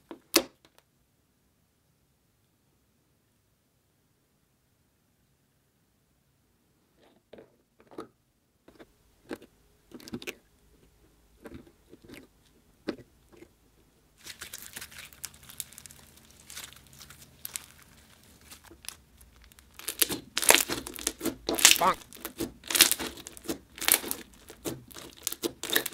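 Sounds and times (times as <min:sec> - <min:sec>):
slime crackling and crunching: 0:14.2 - 0:25.9.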